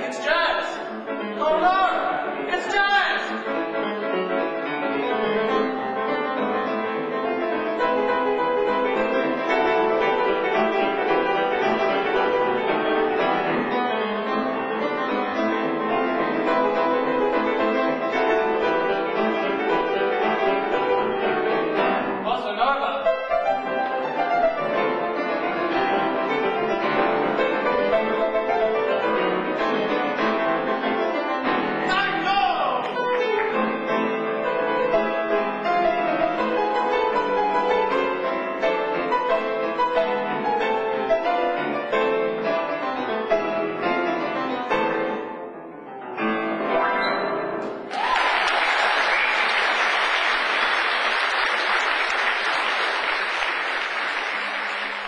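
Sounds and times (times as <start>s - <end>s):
solo grand piano: 0.0s - 55.0s
audience applause: 47.9s - 55.0s.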